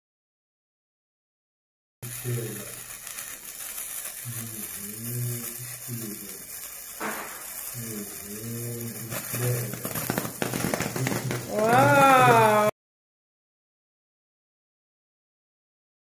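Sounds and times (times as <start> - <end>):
sparkler fizzing and crackling: 2.0 - 12.8
faint voice: 11.0 - 12.7.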